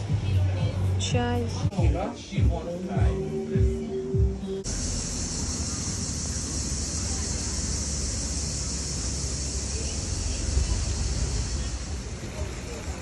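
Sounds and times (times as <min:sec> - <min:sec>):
high hiss: 0:04.6 - 0:13.0.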